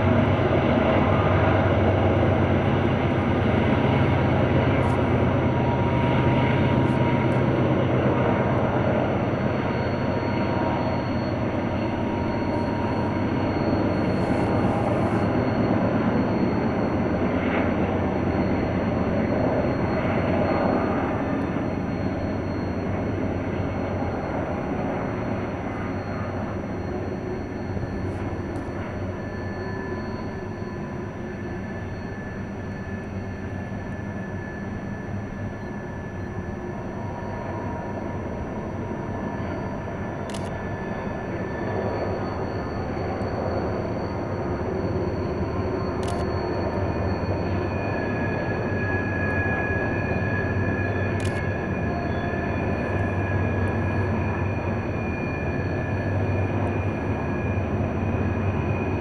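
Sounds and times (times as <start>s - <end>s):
distant freight train rumble: 0.0s - 59.0s.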